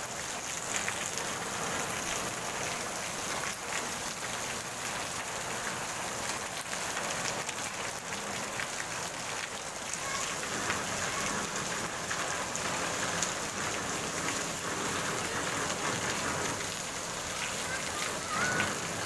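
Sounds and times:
heavy rain splashing in water: 0:00.0 - 0:19.0.

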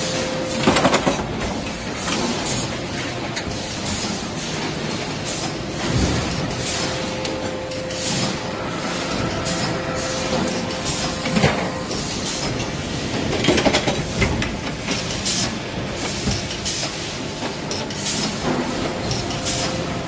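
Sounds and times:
factory machinery running: 0:00.0 - 0:20.0.

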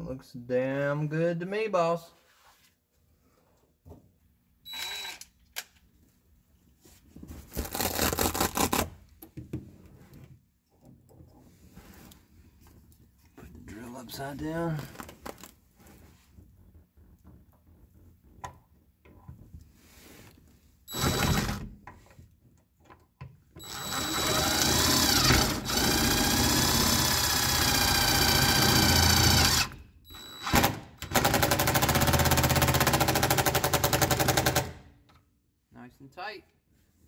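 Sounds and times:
impact driver rattling: 0:30.4 - 0:34.9.

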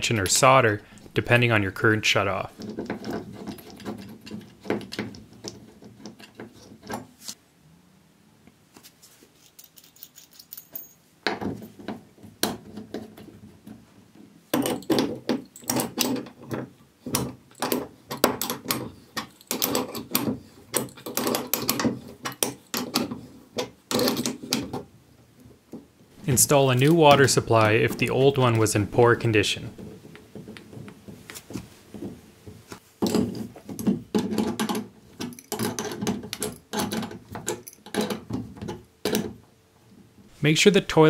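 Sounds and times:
wrenches clinking on metal fittings: 0:09.4 - 0:11.8, 0:14.6 - 0:16.4, 0:17.1 - 0:24.7, 0:33.0 - 0:39.3.

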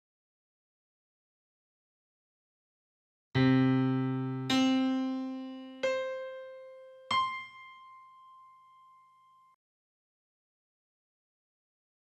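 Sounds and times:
piano-like keyboard notes: 0:03.4 - 0:09.6.

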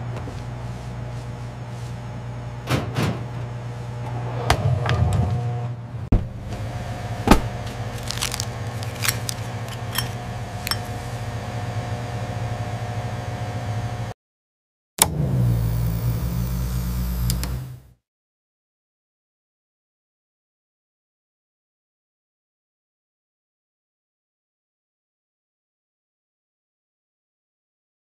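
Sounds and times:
laboratory equipment humming: 0:00.0 - 0:14.2, 0:15.0 - 0:18.0
glass jar and metal lid clicking: 0:08.3 - 0:11.0.

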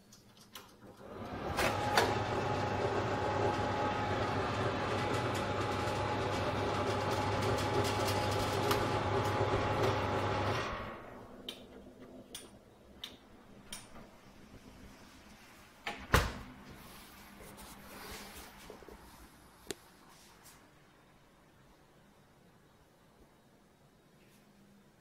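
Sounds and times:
electric oven humming: 0:01.0 - 0:15.6.

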